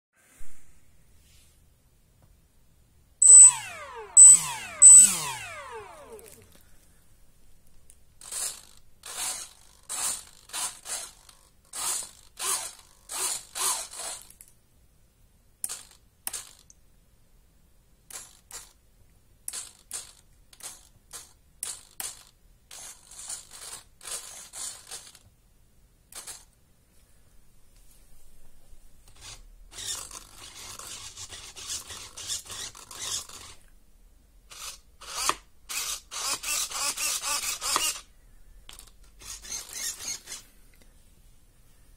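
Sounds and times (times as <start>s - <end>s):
small servos buzzing: 3.2s - 6.7s, 8.2s - 14.3s, 29.1s - 33.6s, 34.5s - 38.1s, 38.7s - 40.5s.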